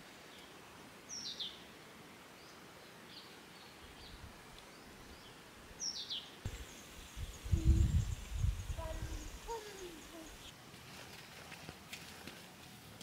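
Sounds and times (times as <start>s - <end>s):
outdoor background hiss: 0.0s - 13.0s
birds calling: 5.1s - 10.5s.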